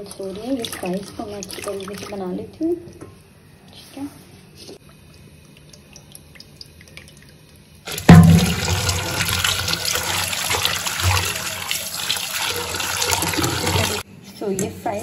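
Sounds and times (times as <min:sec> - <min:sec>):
tap water running into pot: 0:00.0 - 0:02.4, 0:04.9 - 0:14.0.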